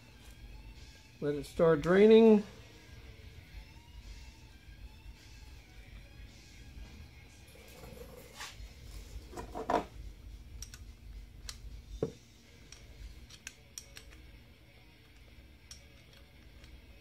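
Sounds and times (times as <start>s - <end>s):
metallic clicks on brake parts: 10.5s - 11.7s, 12.7s - 14.3s, 15.0s - 17.0s.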